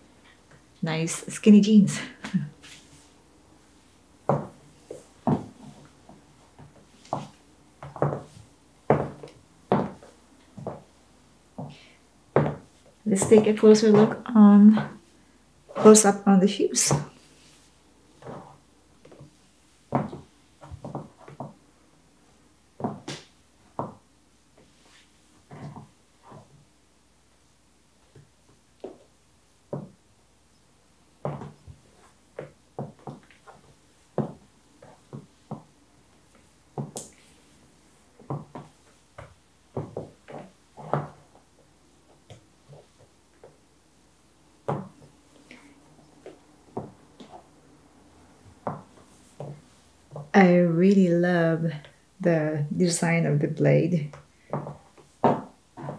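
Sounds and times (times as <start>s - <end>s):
heel scraping on floor: 4.2s - 10.9s, 11.6s - 14.2s, 16.8s - 19.3s, 19.9s - 21.6s, 22.8s - 24.0s, 24.6s - 26.6s, 31.2s - 35.7s, 38.2s - 41.4s, 54.4s - 55.9s
high heels clicking on hard floor: 4.2s - 10.9s, 11.6s - 15.0s, 19.9s - 21.6s, 22.8s - 24.0s, 31.2s - 31.8s, 32.4s - 35.7s, 36.3s - 37.2s, 38.2s - 41.4s, 44.6s - 45.1s, 46.2s - 47.4s, 48.5s - 50.6s, 54.1s - 55.9s.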